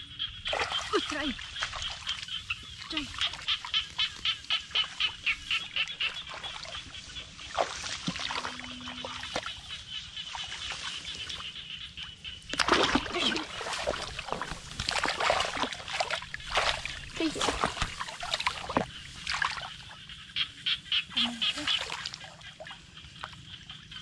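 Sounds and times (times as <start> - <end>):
hands splashing in muddy water: 0.5 - 9.7, 12.5 - 19.8.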